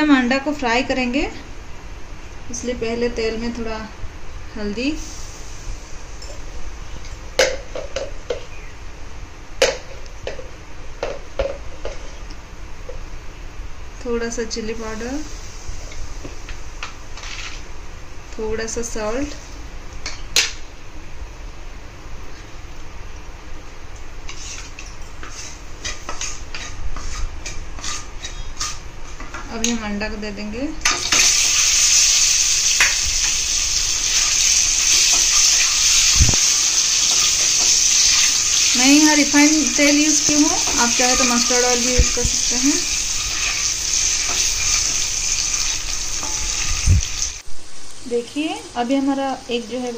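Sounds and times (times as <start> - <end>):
wooden spatula scraping pan: 24.3 - 29.2
hot oil popping and spitting: 30.9 - 47.4.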